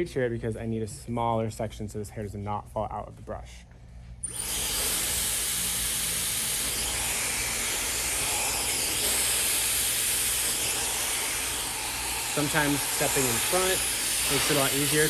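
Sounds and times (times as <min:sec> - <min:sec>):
hair dryer blowing air: 0:04.2 - 0:15.0.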